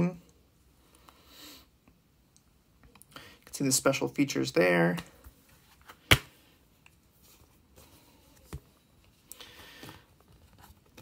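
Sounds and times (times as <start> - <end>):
plastic case snapping open: 6.0 - 6.3.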